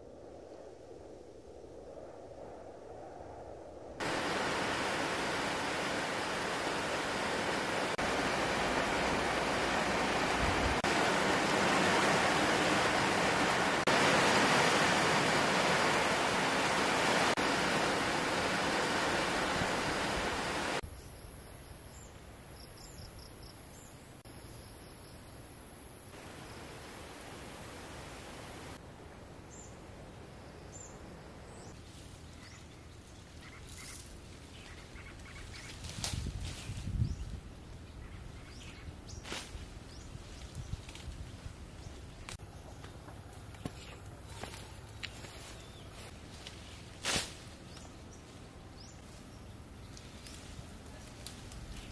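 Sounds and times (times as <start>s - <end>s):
steady outdoor hiss: 0.0s - 51.9s
rain falling steadily: 4.0s - 20.8s, 26.1s - 29.1s, 49.8s - 51.9s.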